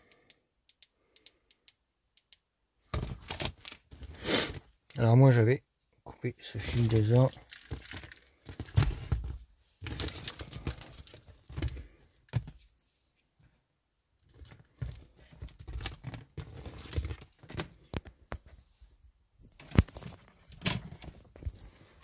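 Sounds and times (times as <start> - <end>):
hands rustling wires and plastic: 2.9 - 4.7, 6.5 - 13.5, 14.2 - 18.6, 19.4 - 22.0.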